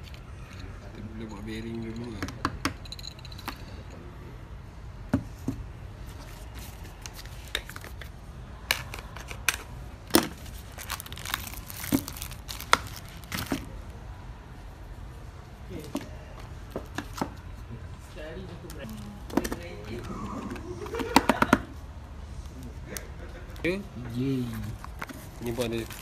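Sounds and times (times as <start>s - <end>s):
plastic packaging crinkling: 8.8s - 13.7s, 24.8s - 26.0s.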